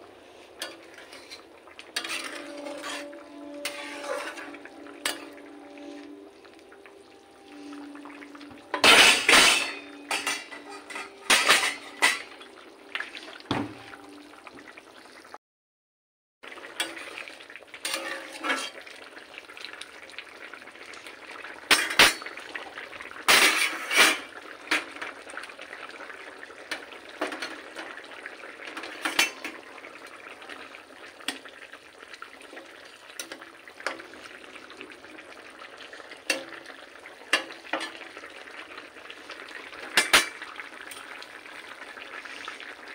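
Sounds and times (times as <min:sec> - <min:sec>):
curry sizzling and bubbling: 0:00.0 - 0:15.4, 0:16.4 - 0:42.9
metal spatula scraping iron pan: 0:00.6 - 0:06.1, 0:08.7 - 0:12.3, 0:17.8 - 0:18.8, 0:23.3 - 0:24.3.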